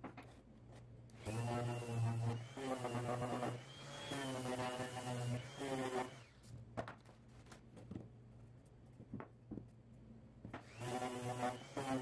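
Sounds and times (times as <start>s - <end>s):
orbital sander running: 1.2s - 6.4s, 10.7s - 12.0s.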